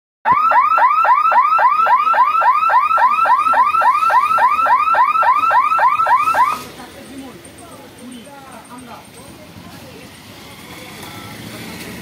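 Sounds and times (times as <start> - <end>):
level crossing warning hooter whooping: 0.3 - 6.6.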